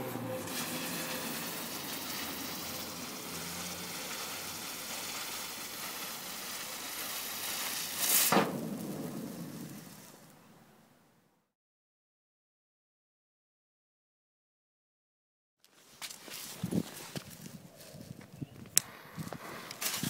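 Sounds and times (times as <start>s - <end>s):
firework spraying sparks hiss: 0.4s - 10.4s, 18.8s - 20.0s
loud sharp crack: 1.9s - 10.7s.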